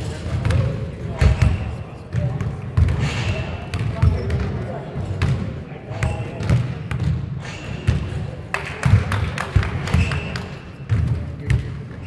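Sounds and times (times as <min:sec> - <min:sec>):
voices echoing: 0:00.0 - 0:12.0
basketball bouncing on hardwood floor: 0:10.9 - 0:11.7.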